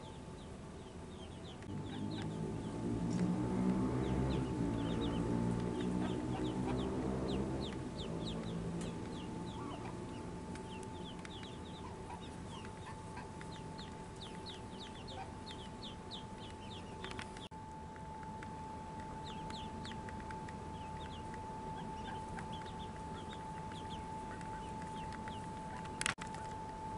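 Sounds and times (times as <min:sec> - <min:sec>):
ducklings peeping: 0:00.0 - 0:17.5, 0:18.2 - 0:26.5
low hum: 0:00.0 - 0:26.9.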